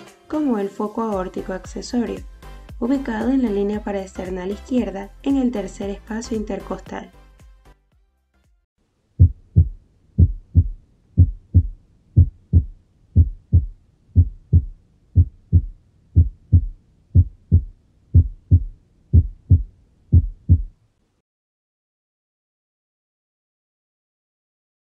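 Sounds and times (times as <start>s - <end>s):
heartbeat lub-dub: 9.2s - 20.8s.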